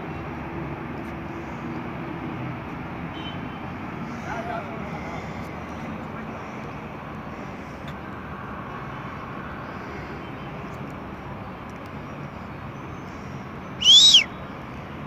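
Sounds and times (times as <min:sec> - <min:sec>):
outdoor background noise: 0:00.0 - 0:15.0
rising and falling whistle: 0:13.8 - 0:14.3.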